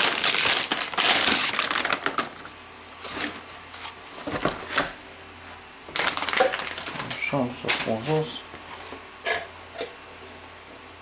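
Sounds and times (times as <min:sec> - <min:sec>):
foil bag crinkling: 0:00.0 - 0:04.6, 0:05.9 - 0:08.4.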